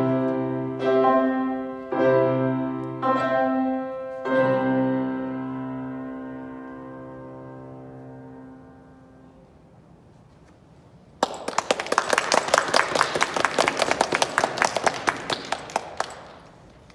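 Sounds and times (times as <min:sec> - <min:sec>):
grand piano chord: 0:00.0 - 0:09.6
audience applause: 0:11.2 - 0:16.9.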